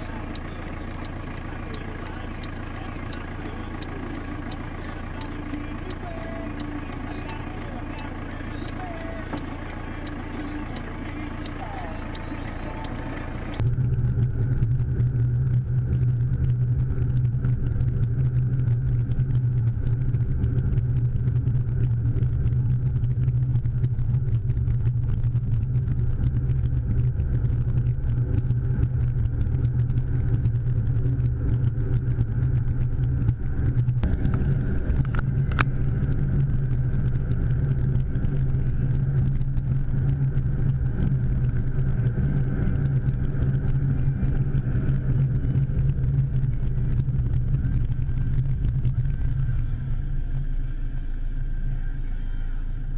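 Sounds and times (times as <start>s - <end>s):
faint clicks: 0.0s - 13.6s
engine and road noise drone: 0.0s - 52.9s.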